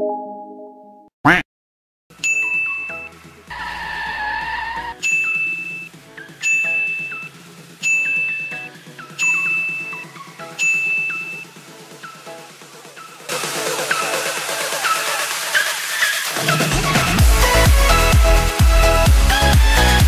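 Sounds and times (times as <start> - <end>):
bell-like chime: 2.2 - 3.1, 10.6 - 11.4
upbeat electronic music: 4.8 - 20.0.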